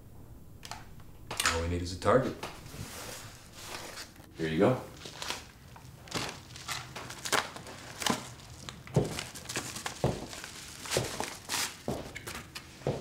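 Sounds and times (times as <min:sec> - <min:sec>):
paper envelope crinkling: 0:04.9 - 0:12.7.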